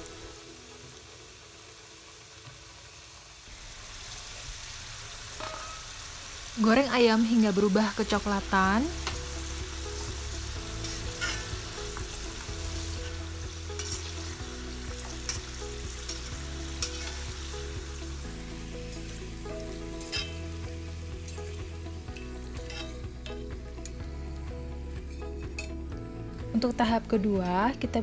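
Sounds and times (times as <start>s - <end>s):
chicken sizzling in hot oil: 0.0s - 27.5s
metal turner clinking on wok: 5.4s - 5.9s, 15.3s - 17.3s, 19.5s - 20.5s, 22.2s - 24.0s.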